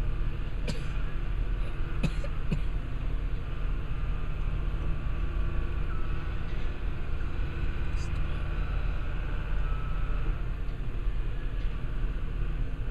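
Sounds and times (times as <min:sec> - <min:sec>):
crane engine humming: 0:00.0 - 0:12.9.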